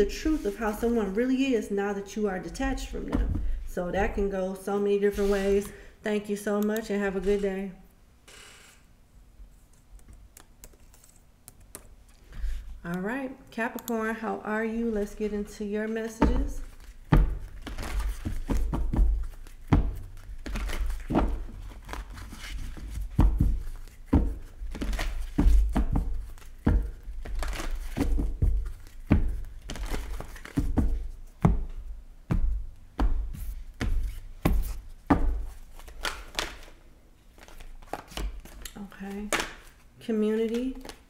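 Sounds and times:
cards being shuffled: 9.7 - 12.5, 16.2 - 31.4, 33.3 - 41.0.

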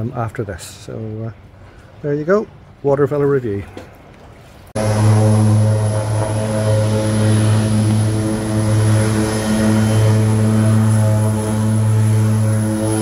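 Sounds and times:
high engine whine: 4.8 - 13.0
seaplane propeller drone: 4.8 - 13.0.

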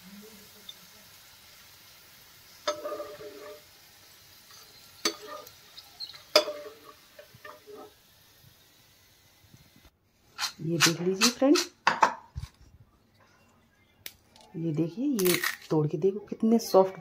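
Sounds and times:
faint sizzling in oil: 0.0 - 11.9
metal spoon clinking on frying pan: 2.6 - 3.6, 4.5 - 5.5, 6.2 - 7.7.

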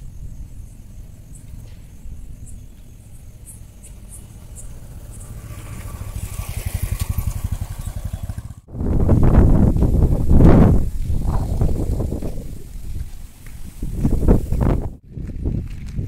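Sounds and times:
wind rumble on microphone: 0.0 - 16.0
vehicle engine running: 0.9 - 10.4.

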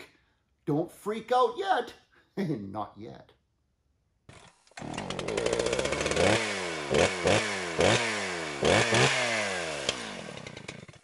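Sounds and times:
small petrol engine revving: 4.3 - 11.0.

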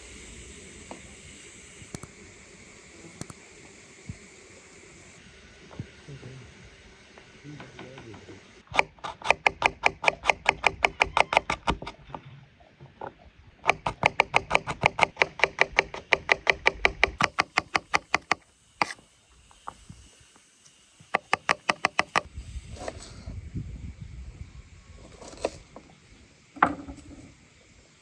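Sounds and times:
knife chopping on wooden board: 8.8 - 12.0, 13.6 - 19.0.

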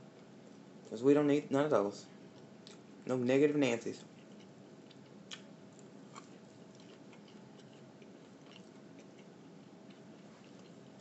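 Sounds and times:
person chewing food: 4.0 - 11.0.

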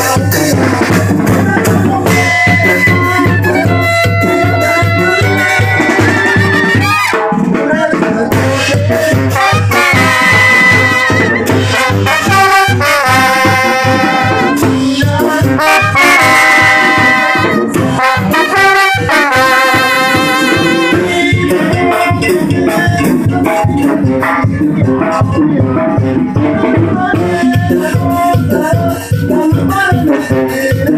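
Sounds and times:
brass band playing: 0.0 - 30.9
percussion: 0.0 - 30.9
bass beat: 19.8 - 30.9.

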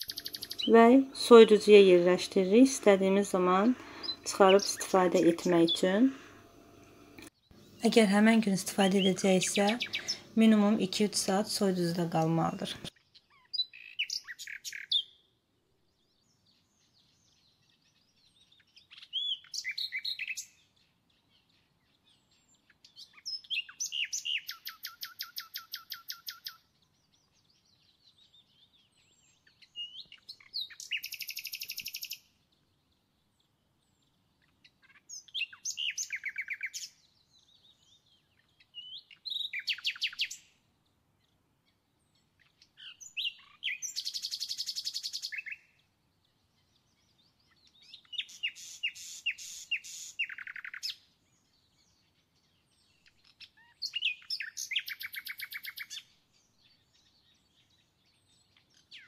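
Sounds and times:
songbird trilling: 0.0 - 6.0, 8.8 - 11.1, 12.9 - 15.2, 18.6 - 20.6, 22.9 - 26.6, 28.4 - 32.3, 34.4 - 40.5, 42.4 - 45.8, 46.8 - 51.0, 52.9 - 56.1
soft bird chirps: 0.0 - 6.3, 7.2 - 59.0.

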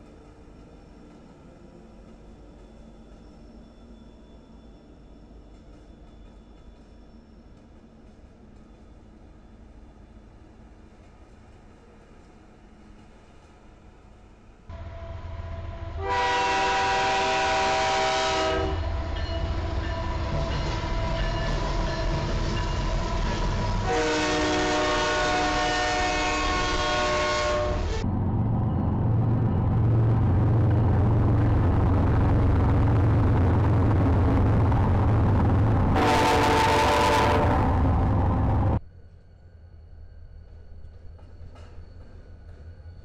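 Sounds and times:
train horn: 14.7 - 21.6, 22.9 - 28.0, 35.9 - 38.8
diesel locomotive rumble: 14.7 - 38.8.

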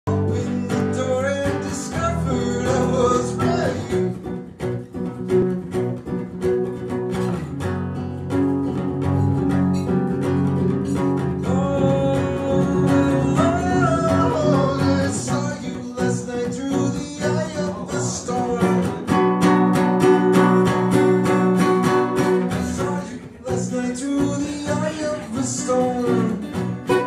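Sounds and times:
man singing: 0.0 - 4.3, 11.2 - 19.4, 20.0 - 27.0
acoustic guitars strumming: 0.1 - 27.0.

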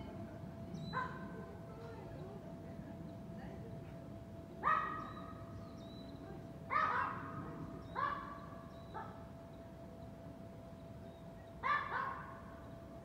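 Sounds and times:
low city background hum: 0.0 - 13.0
dog barking: 0.9 - 1.2, 4.6 - 5.2, 6.7 - 7.3, 8.0 - 8.4, 11.6 - 12.3.

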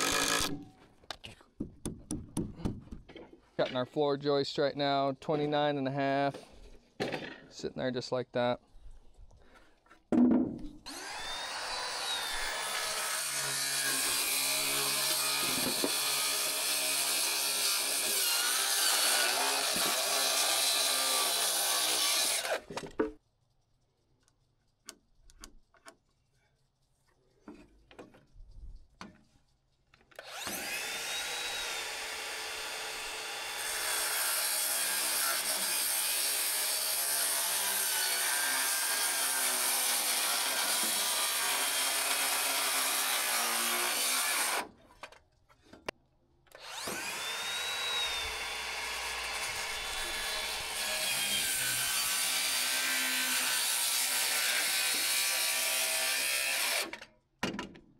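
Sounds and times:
circular saw cutting wood: 0.0 - 0.6, 10.8 - 22.7, 30.2 - 44.7, 46.5 - 57.0.

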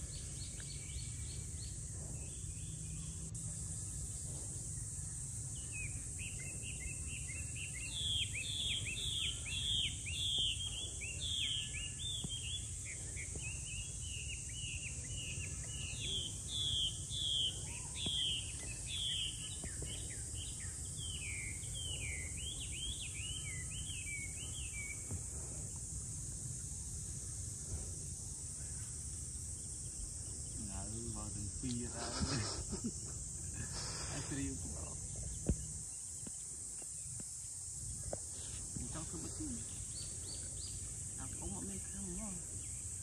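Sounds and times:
high-pitched hiss: 0.0 - 43.0
bird singing whistled notes: 5.6 - 25.2.

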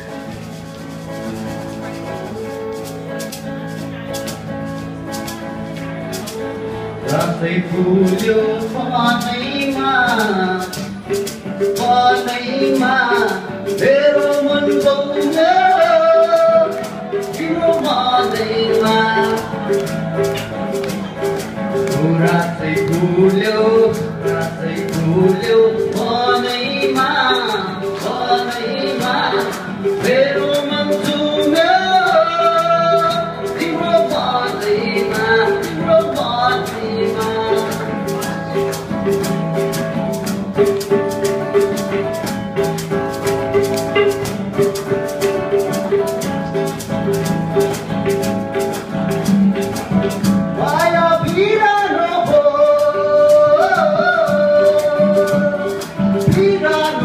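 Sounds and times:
guitars: 0.0 - 57.0
shaker rhythm: 0.0 - 57.0
men singing: 7.0 - 10.8, 11.6 - 19.9, 21.8 - 38.3, 50.6 - 57.0.

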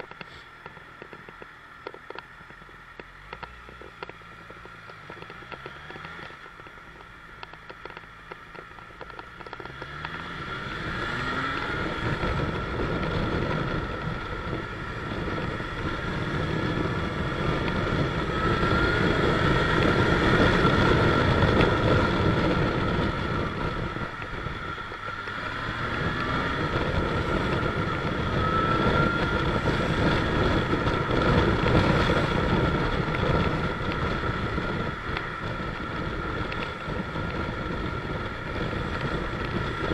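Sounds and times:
motorcycle engine revving: 0.0 - 39.9
wind rush on microphone: 0.0 - 39.9.

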